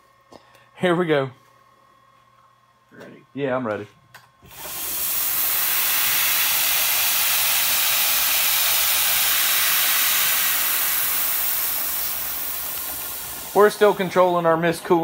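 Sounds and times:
mist coolant sprayer hissing: 4.4s - 15.0s.

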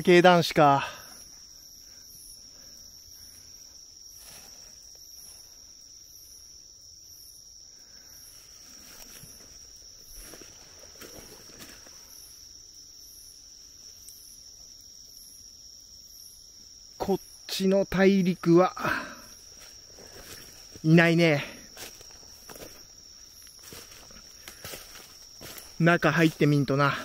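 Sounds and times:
crickets trilling: 0.0s - 27.0s
fast pulsing insect call: 0.0s - 27.0s
rustles in undergrowth: 1.1s - 6.0s, 7.8s - 12.8s, 18.8s - 27.0s.

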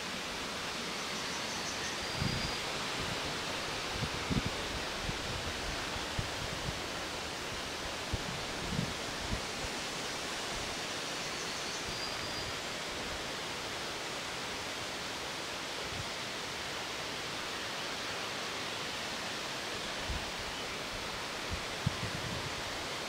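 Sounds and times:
leaves rustling: 0.0s - 14.3s
wind: 0.0s - 23.0s.

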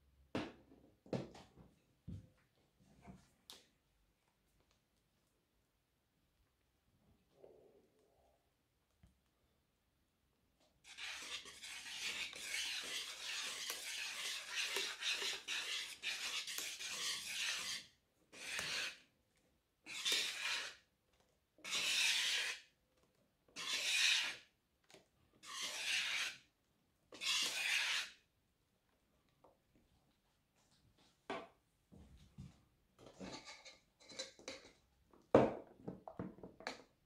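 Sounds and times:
whisk scraping through batter: 10.9s - 19.0s, 19.8s - 20.9s, 21.6s - 22.7s, 23.6s - 24.5s, 25.4s - 26.5s, 27.2s - 28.2s.

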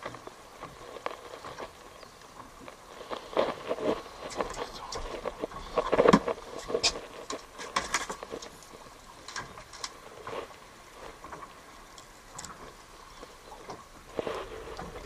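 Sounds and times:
clicks of handling fishing gear: 3.2s - 10.0s.

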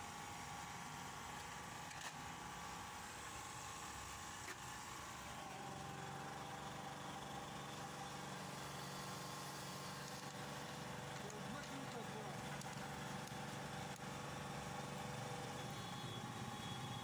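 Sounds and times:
photocopier whirring hum: 0.0s - 17.0s.

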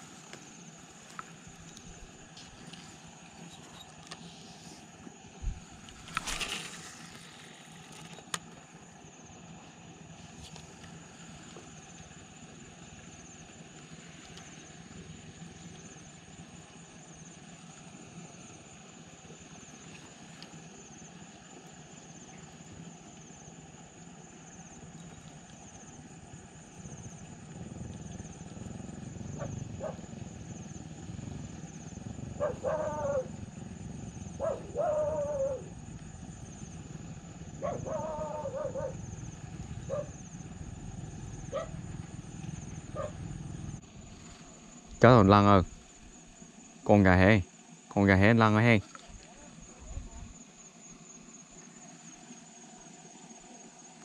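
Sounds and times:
pulsing high hiss: 0.0s - 25.1s, 25.8s - 54.0s
outdoor background: 0.0s - 54.0s
reel click: 5.7s - 8.6s.

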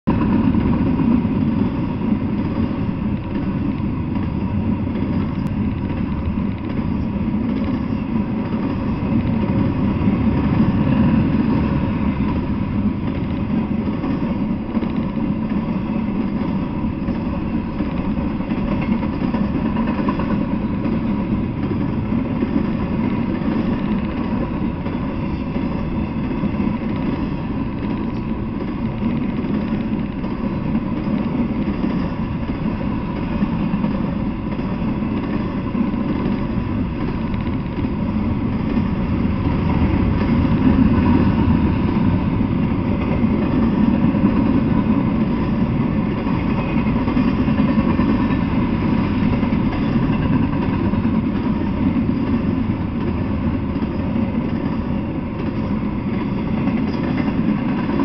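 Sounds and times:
freight train rumbling on rails: 0.0s - 58.0s.

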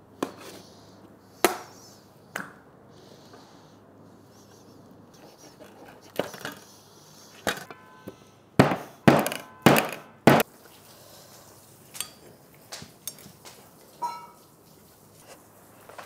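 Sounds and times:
heavy knocking blows: 8.6s - 10.4s
metallic ring: 14.0s - 14.4s.

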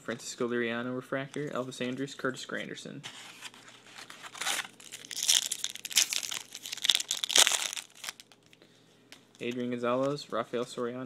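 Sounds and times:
foil wrapper crinkling and tearing: 3.9s - 8.6s.

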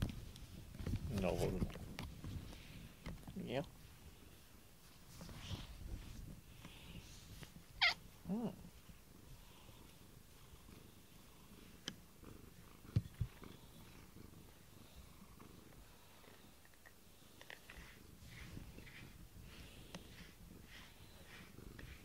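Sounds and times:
cat purring: 5.3s - 22.0s.

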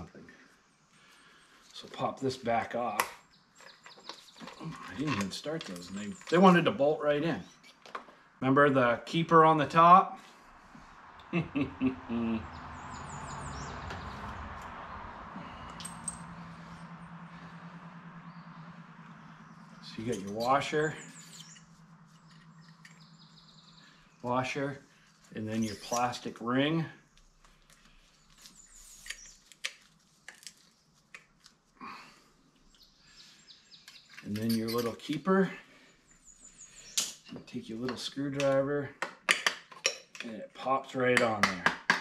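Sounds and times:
birds chirping: 0.0s - 8.4s, 10.2s - 29.7s, 30.6s - 38.6s
low pulsing hum: 10.8s - 24.2s
person speaking: 11.5s - 12.5s, 19.8s - 21.1s.

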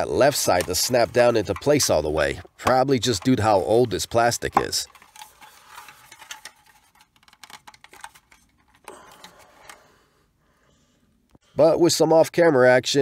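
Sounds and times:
plastic toy parts clicking and creaking: 0.2s - 9.9s.

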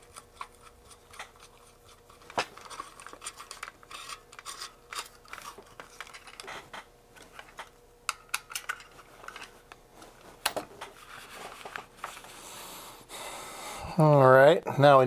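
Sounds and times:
plastic and metal parts clicking: 7.3s - 9.5s.

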